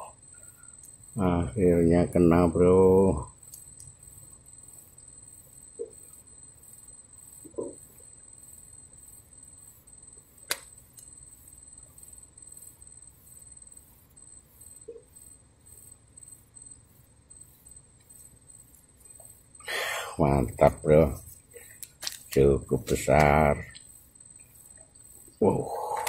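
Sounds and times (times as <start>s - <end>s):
high insect trill: 0.0s - 26.0s
sharp click: 10.4s - 11.1s.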